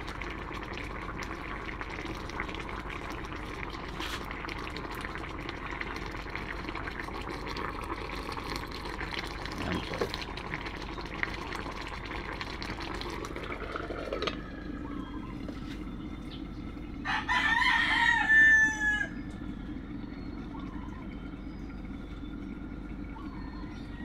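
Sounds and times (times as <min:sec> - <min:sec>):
low steady hum: 0:00.0 - 0:24.0
rooster crowing: 0:17.0 - 0:19.3.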